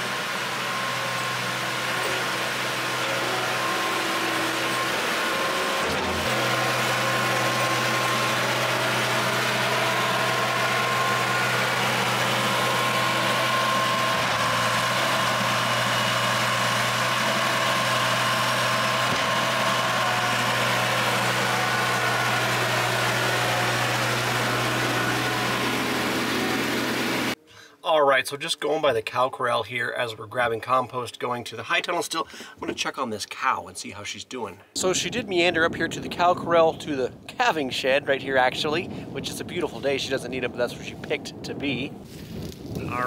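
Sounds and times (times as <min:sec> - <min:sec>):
vehicle engine running: 0:00.0 - 0:27.4.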